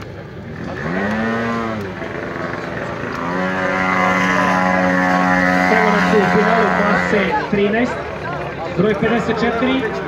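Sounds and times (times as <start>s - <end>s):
car engine revving: 0.4s - 8.3s.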